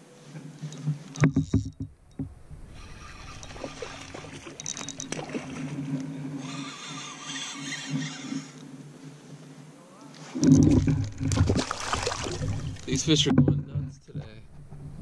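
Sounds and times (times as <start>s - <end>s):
fishing rod knocks and clicks: 0.6s - 6.1s, 10.4s - 11.7s, 12.4s - 14.4s
spinning reel whirring: 2.7s - 5.2s, 6.4s - 8.6s.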